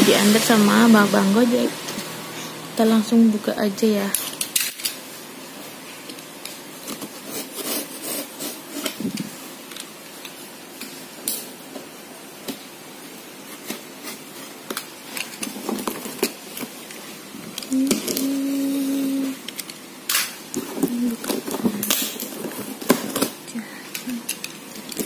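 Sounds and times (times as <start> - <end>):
box cutter cutting packing tape: 7.0 - 9.1.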